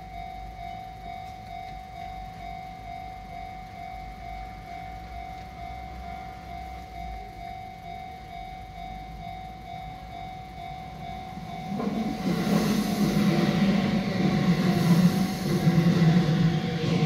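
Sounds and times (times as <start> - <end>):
level crossing bell ringing: 0.0 - 12.2
electric train passing: 0.0 - 17.0.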